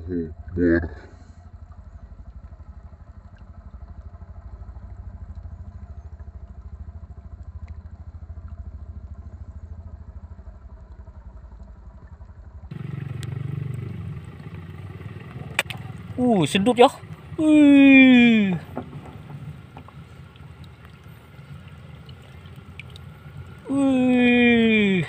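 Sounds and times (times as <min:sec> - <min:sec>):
pulsing engine-like drone: 0:00.0 - 0:25.0
loud full rumble: 0:10.1 - 0:25.0.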